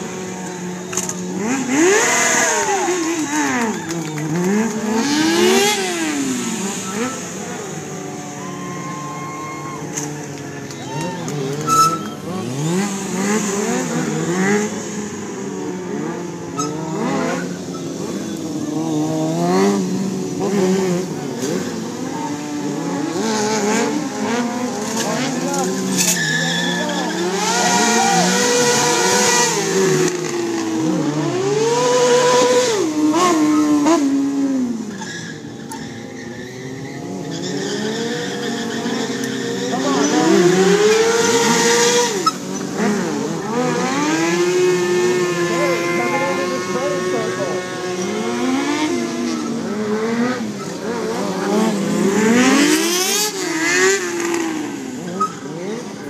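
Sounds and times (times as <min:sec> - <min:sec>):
motorcycle engines revving: 0:00.0 - 0:56.0
tire squealing: 0:00.0 - 0:56.0.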